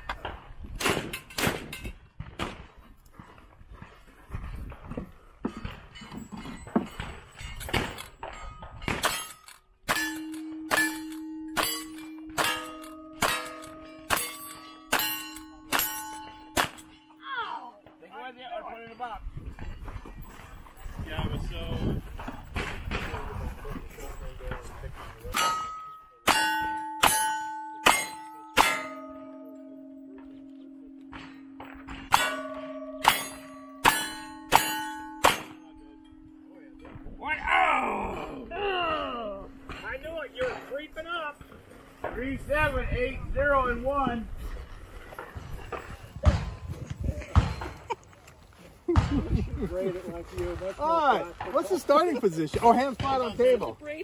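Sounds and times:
steady ringing: 5.4 - 22.5, 25.2 - 46.0
bullets clanging on steel targets: 5.5 - 18.0, 25.2 - 37.5.

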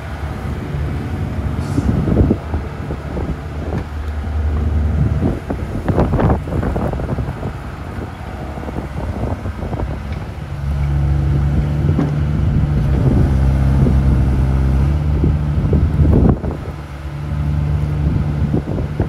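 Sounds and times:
excavator diesel engine running: 0.0 - 19.0
excavator clunks: 11.6 - 13.2.

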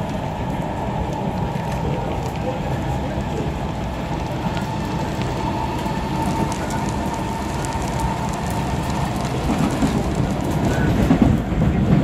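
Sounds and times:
heavy rain: 0.0 - 12.0
train running rumble: 0.0 - 12.0
sharp raindrop ticks: 3.2 - 10.9.

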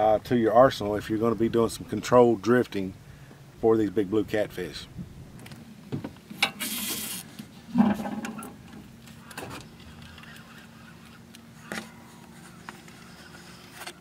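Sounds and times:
faint steady hum: 0.0 - 14.0
fishing rod scraping out of holder: 6.4 - 8.7.

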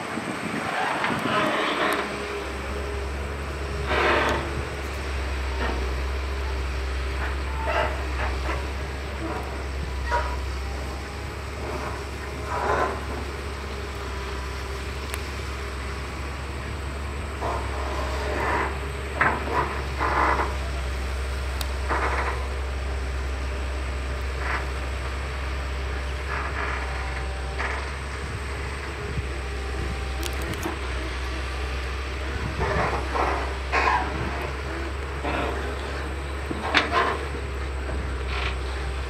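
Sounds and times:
excavator diesel engine: 0.0 - 39.0.

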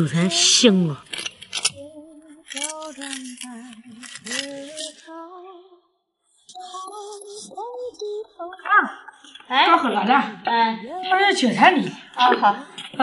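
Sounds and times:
person singing slow notes: 6.5 - 9.1.

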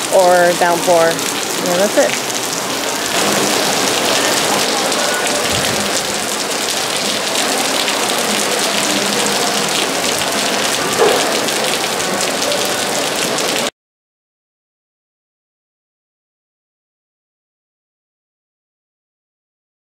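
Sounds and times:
heavy rain on stone paving: 0.0 - 13.8.

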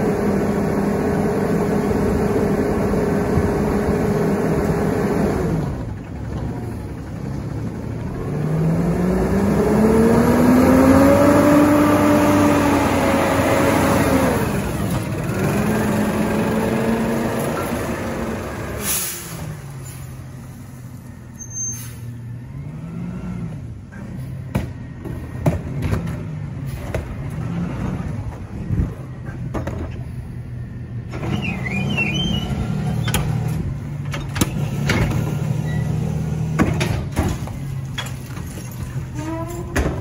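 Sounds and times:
garbage truck diesel engine: 0.0 - 40.0
trash cart knocking and clattering: 24.5 - 27.4, 36.4 - 40.0.

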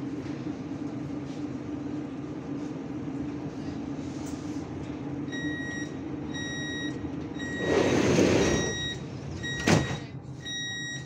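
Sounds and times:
high warning beeps: 5.3 - 11.0.

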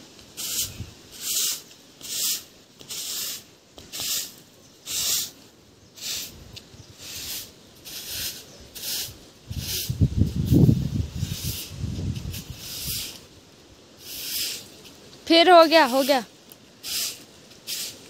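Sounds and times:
twig broom sweeping concrete: 0.0 - 18.0.

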